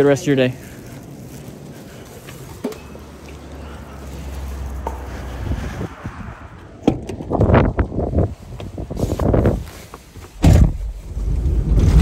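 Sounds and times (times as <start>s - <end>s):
plastic bags rustling: 0.0s - 5.6s.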